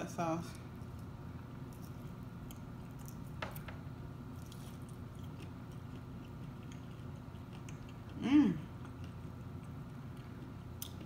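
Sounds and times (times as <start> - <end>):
low steady hum: 0.0 - 11.0
person chewing food: 4.3 - 11.0.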